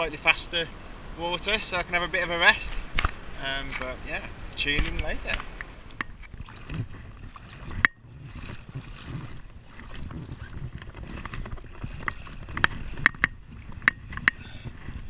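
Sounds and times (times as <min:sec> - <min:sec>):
hand rubbing inflatable tube: 0:06.4 - 0:15.0.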